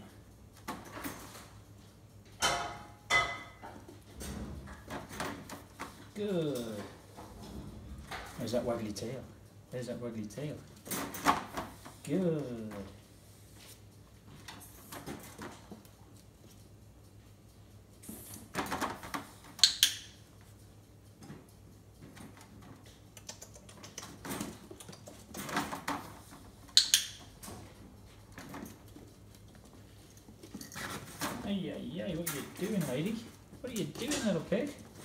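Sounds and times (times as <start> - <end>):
rustling and handling noises: 3.7 - 19.6, 20.4 - 35.0
dog-training clicker clicks: 19.1 - 20.2, 26.7 - 27.3.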